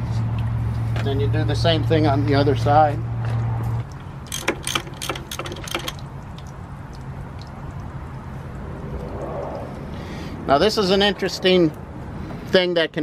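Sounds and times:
low steady hum: 0:00.0 - 0:12.4
socket ratchet clicking: 0:04.2 - 0:06.1.

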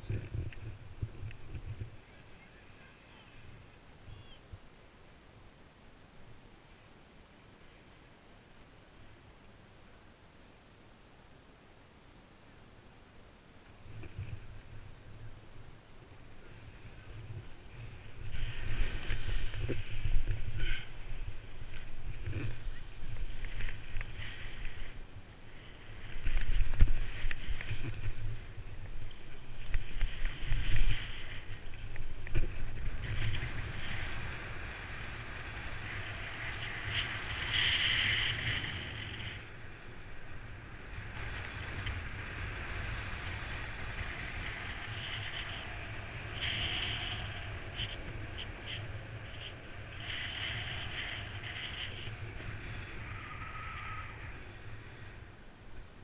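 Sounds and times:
wind buffeting microphone: 0:13.9 - 0:55.4.

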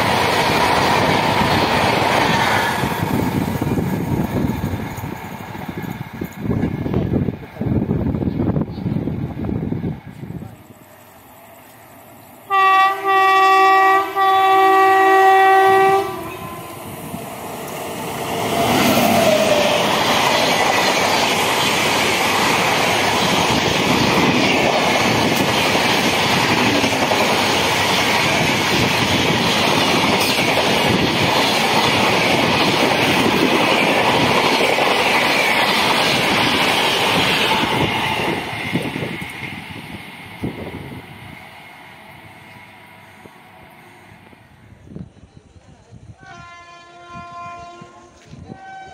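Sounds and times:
train wheels on rails: 0:00.0 - 0:48.9
train horn blasts: 0:12.5 - 0:17.0, 0:46.2 - 0:48.9.

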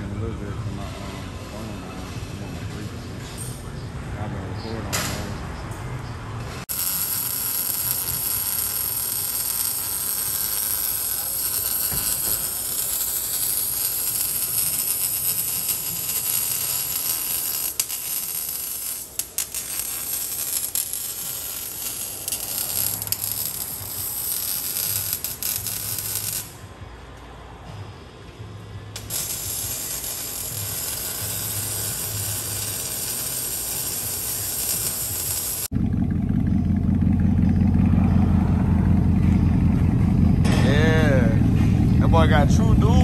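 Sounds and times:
welding arc crackling and hissing: 0:06.6 - 0:26.7, 0:29.0 - 0:35.7.

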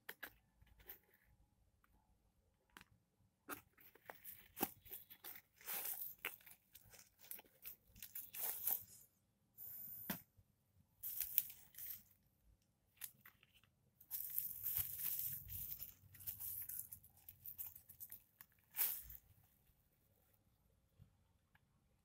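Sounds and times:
bubble wrap crinkling: 0:03.7 - 0:09.1, 0:11.0 - 0:12.2, 0:12.9 - 0:19.5.

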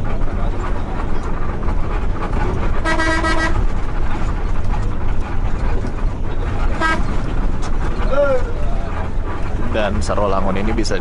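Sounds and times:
bus engine rumble: 0:00.0 - 0:11.0
road noise: 0:00.0 - 0:11.0
vehicle horn toot: 0:02.8 - 0:03.6, 0:06.8 - 0:07.1.

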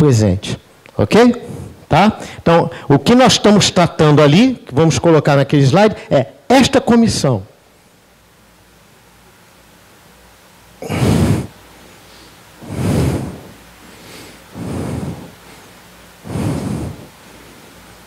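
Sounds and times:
breathy rushes on microphone: 0:01.4 - 0:02.4, 0:10.8 - 0:17.2.

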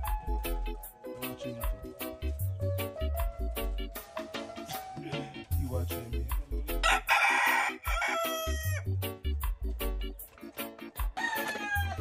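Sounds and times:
background music with steady beat: 0:00.0 - 0:12.0
rooster crowing: 0:06.8 - 0:08.9, 0:11.1 - 0:12.0.

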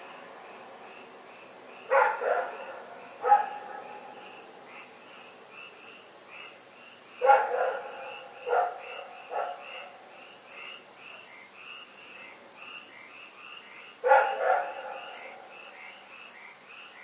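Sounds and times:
dog barking: 0:01.9 - 0:04.1, 0:07.2 - 0:10.0, 0:14.0 - 0:15.4.

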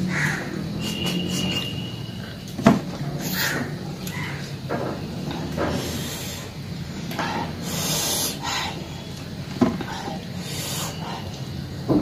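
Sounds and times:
hissing breaths: 0:05.2 - 0:09.1, 0:09.7 - 0:11.6.

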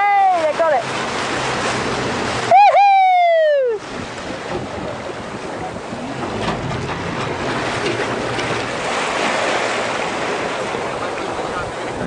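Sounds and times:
boat motor running: 0:00.0 - 0:12.0
sea water splashing: 0:00.0 - 0:12.0
wind buffeting microphone: 0:03.3 - 0:12.0.

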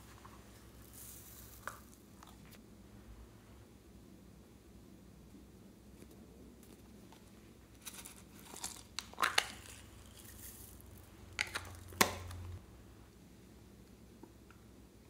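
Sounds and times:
crinkling rustles: 0:00.0 - 0:02.6, 0:06.6 - 0:12.2.

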